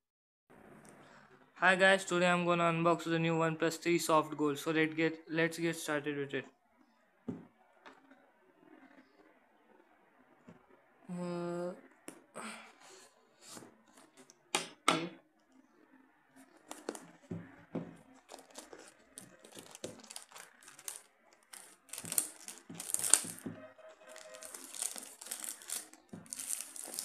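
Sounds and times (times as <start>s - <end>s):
plastic film crinkling and tearing: 16.6s - 17.2s, 18.1s - 27.0s.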